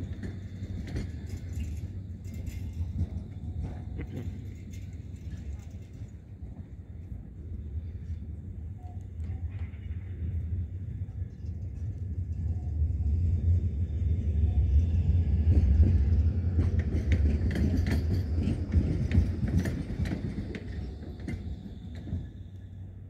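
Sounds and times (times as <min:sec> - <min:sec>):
wheels clattering over rail joints: 0:00.0 - 0:06.6, 0:15.4 - 0:22.4
tram rumbling: 0:00.0 - 0:23.0.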